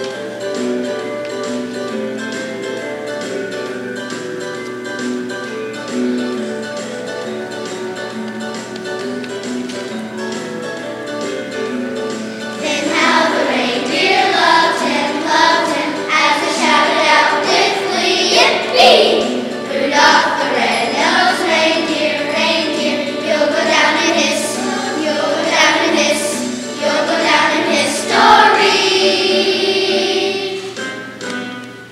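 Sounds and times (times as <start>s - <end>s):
children's choir singing: 12.1s - 31.2s.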